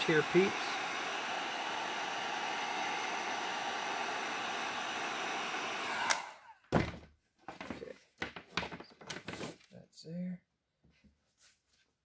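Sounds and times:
heat gun blowing air: 0:00.0 - 0:06.6.

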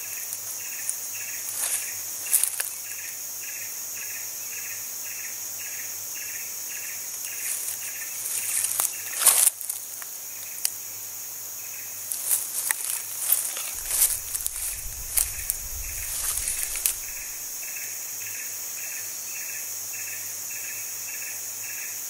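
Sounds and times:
high-pitched insect drone: 0:00.0 - 0:22.0
insect chirp: 0:00.0 - 0:22.0
rustles and knocks: 0:13.2 - 0:17.6.

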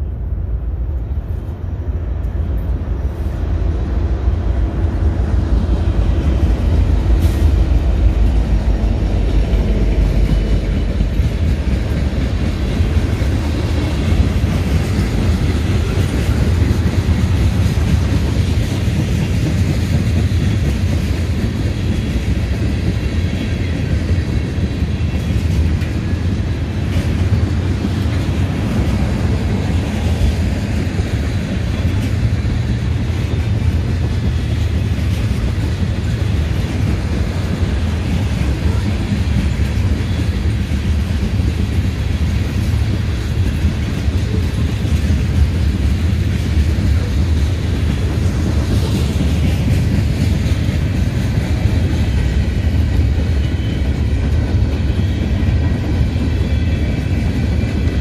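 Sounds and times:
freight train wheels rumbling on rails: 0:00.0 - 0:58.0.

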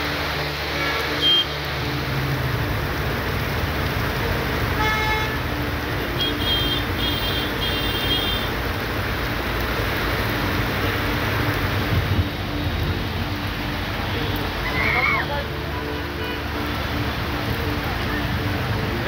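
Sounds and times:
heavy rain: 0:00.0 - 0:19.0
vehicle horn: 0:00.7 - 0:01.5, 0:04.8 - 0:05.5, 0:06.2 - 0:08.5, 0:15.8 - 0:16.7.

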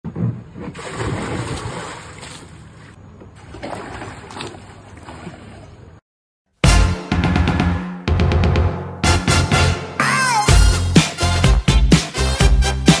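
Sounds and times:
water splashing in a pool: 0:00.6 - 0:06.0
music: 0:06.6 - 0:13.0.

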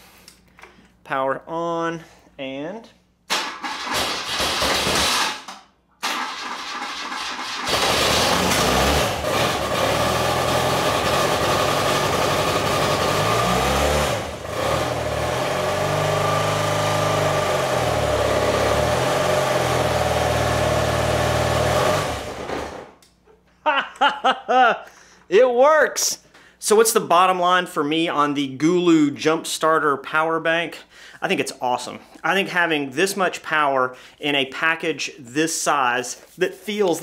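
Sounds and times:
motorcycle engine cranking and running: 0:03.3 - 0:23.0.

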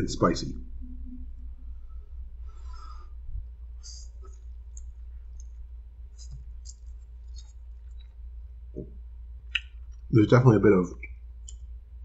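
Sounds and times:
steady low hum: 0:00.0 - 0:12.0
wet mouth clicks: 0:09.5 - 0:10.0.

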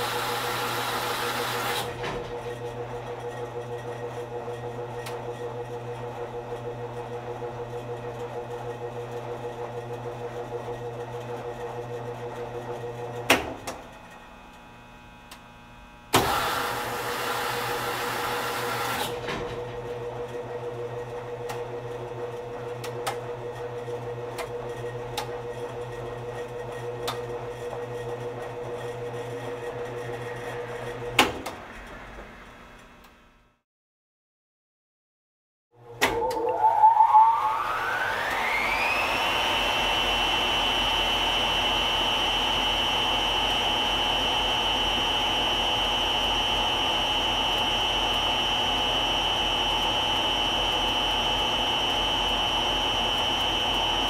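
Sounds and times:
machine humming: 0:35.8 - 0:54.0.

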